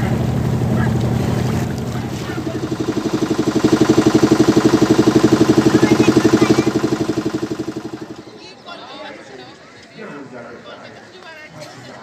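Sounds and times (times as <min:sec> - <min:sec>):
motorboat engine throbbing: 0:00.1 - 0:08.3.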